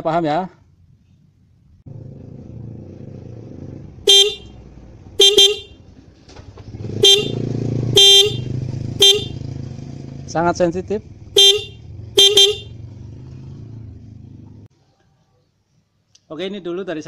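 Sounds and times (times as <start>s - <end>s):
motorcycle horn toots: 4.1s - 4.6s, 5.2s - 5.8s, 6.9s - 9.6s, 11.3s - 13.0s.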